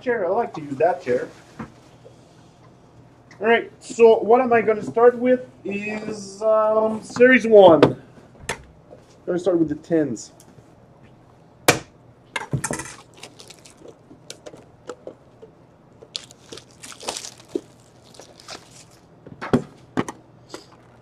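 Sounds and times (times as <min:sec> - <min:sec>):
plastic wrap tearing and crinkling: 0:12.8 - 0:15.0, 0:16.1 - 0:19.1.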